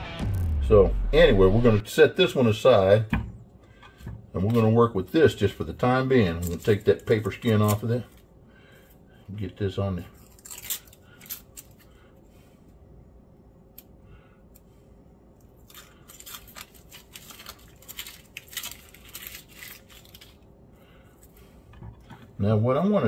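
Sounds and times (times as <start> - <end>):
onion skin crackling and rustling: 5.4 - 8.3, 9.4 - 12.0, 15.4 - 20.5.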